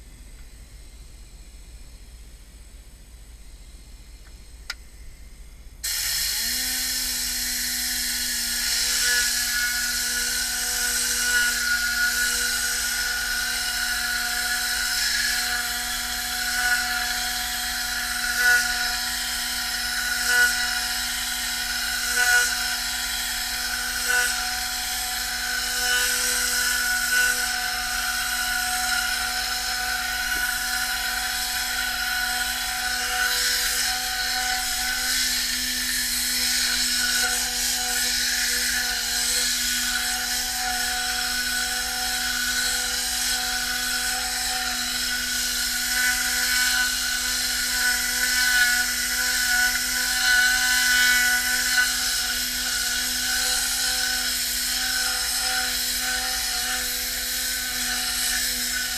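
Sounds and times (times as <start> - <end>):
air cleaning gun hissing: 5.8 - 58.9.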